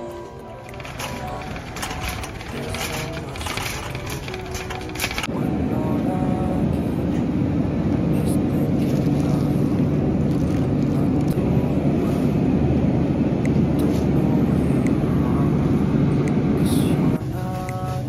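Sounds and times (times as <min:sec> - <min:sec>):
supermarket background rumble: 0:00.0 - 0:18.0
produce being handled: 0:00.7 - 0:05.3.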